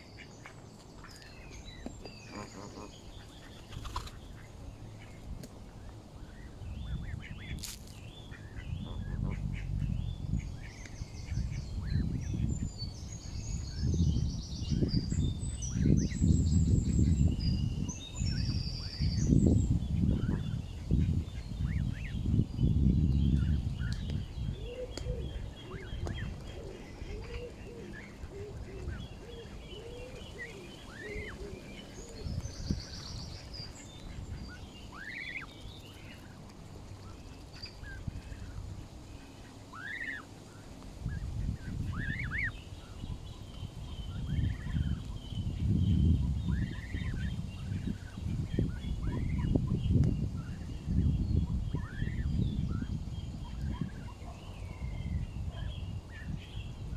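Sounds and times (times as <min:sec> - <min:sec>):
birds chirping and trilling: 0:00.0 - 0:56.9
geese calling: 0:02.3 - 0:05.2, 0:39.4 - 0:40.3
wind buffeting microphone: 0:06.3 - 0:34.9, 0:40.9 - 0:56.9.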